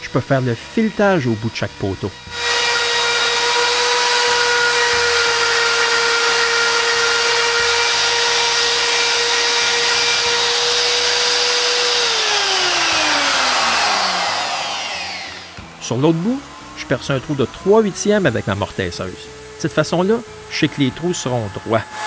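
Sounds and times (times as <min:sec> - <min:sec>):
electric router running: 0:00.0 - 0:22.0.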